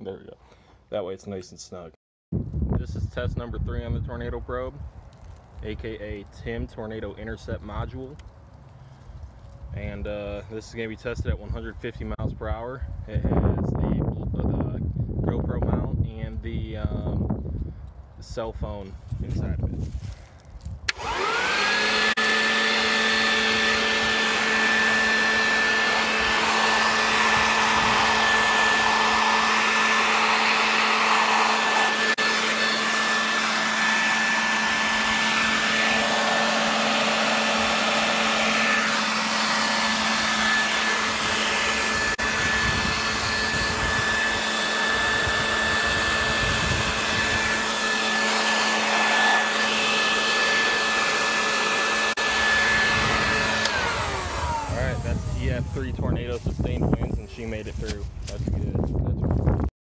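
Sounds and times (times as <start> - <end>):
electric blower motor whine: 19.8 - 57.8.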